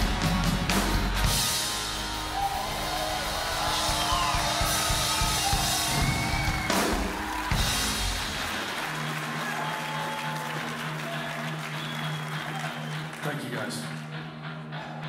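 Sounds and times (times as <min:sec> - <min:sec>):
drum hits: 0:00.0 - 0:08.6
audience whooping: 0:02.0 - 0:13.3.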